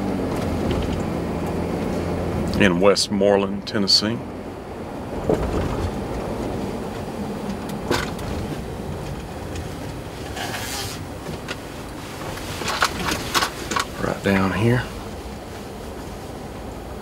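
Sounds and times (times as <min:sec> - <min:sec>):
engine and tyre rumble: 0:00.0 - 0:17.0.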